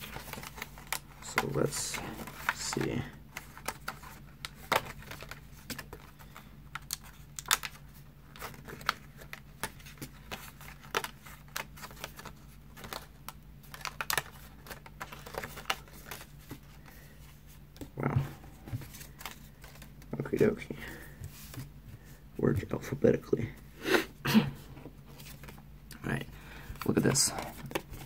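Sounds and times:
paper crinkling: 0:00.0 - 0:22.1.

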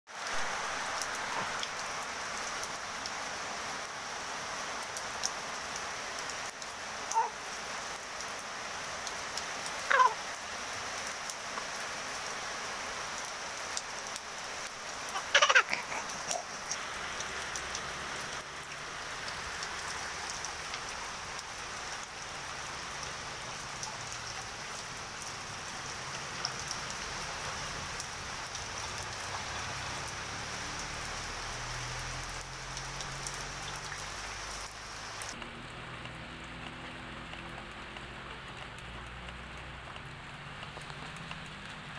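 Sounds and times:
rain on leaves and pavement: 0:00.1 - 0:41.9
animal calls sliding downward: 0:09.8 - 0:10.3, 0:15.0 - 0:16.8.

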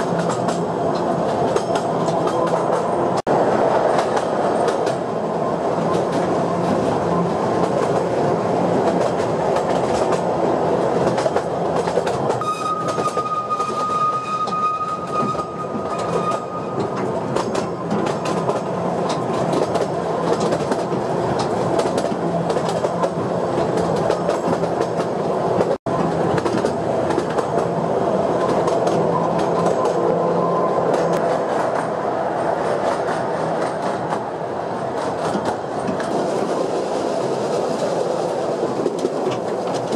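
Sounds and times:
clacking over rail joints: 0:00.0 - 0:03.0, 0:03.9 - 0:05.0, 0:07.6 - 0:08.2, 0:08.8 - 0:10.4, 0:11.0 - 0:27.8, 0:32.7 - 0:36.5, 0:37.4 - 0:39.9
train wheels rumbling on rails: 0:00.0 - 0:39.9
high wheel squeal: 0:12.4 - 0:17.0.

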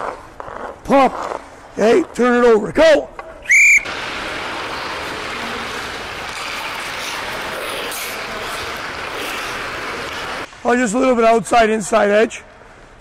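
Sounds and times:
ice skate blades scraping: 0:03.9 - 0:10.5.

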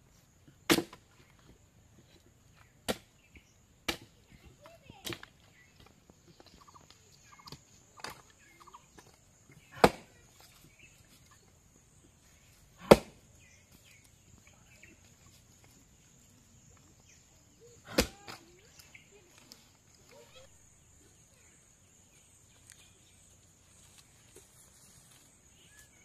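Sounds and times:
firewood being chopped: 0:00.6 - 0:01.3, 0:02.6 - 0:05.9, 0:09.0 - 0:10.3, 0:12.8 - 0:13.3, 0:17.8 - 0:18.4.

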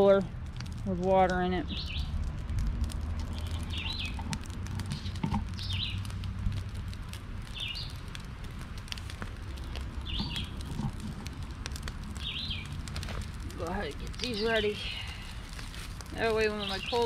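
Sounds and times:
small crackles and clicks: 0:00.0 - 0:17.0
steady low rumble: 0:00.0 - 0:17.0.

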